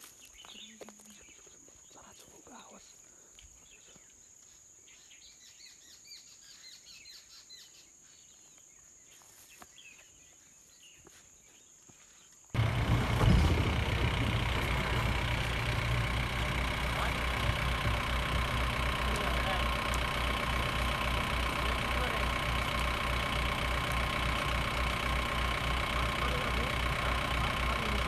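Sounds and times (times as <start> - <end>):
birds chirping: 0.2 - 28.0
jeep engine driving: 12.6 - 28.0.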